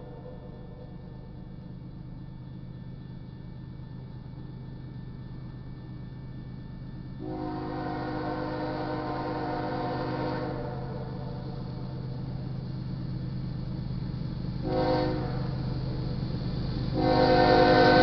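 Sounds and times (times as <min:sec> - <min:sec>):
low locomotive rumble: 0:00.0 - 0:18.0
locomotive air horn blast: 0:07.2 - 0:11.1, 0:14.6 - 0:15.6, 0:17.0 - 0:18.0.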